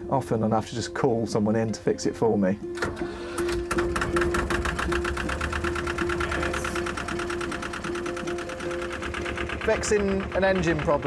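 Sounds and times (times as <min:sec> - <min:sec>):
diesel engine knocking steadily: 0:03.8 - 0:11.0.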